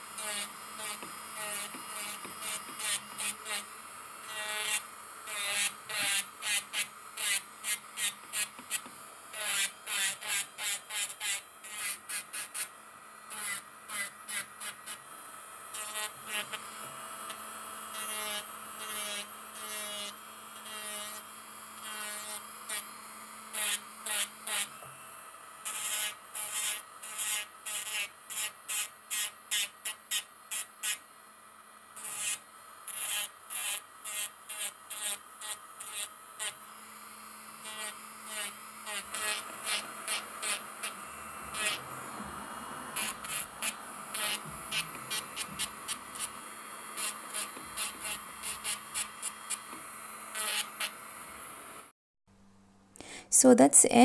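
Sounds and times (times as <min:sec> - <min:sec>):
sanding band grinding nail polish: 0:00.0 - 0:12.7, 0:13.3 - 0:15.1, 0:37.6 - 0:42.1, 0:42.9 - 0:46.4, 0:47.0 - 0:51.0
electric nail drill whining: 0:00.0 - 0:31.0, 0:31.9 - 0:51.9.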